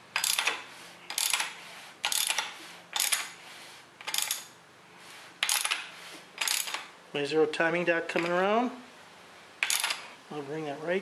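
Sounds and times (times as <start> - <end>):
ratchet wrench clicking: 0.1 - 3.4, 4.0 - 4.5, 5.4 - 6.9, 9.6 - 10.0.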